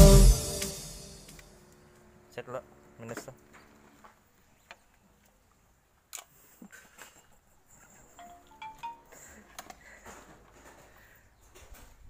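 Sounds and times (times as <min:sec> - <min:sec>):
rising multi-tone chime: 0:00.0 - 0:01.3.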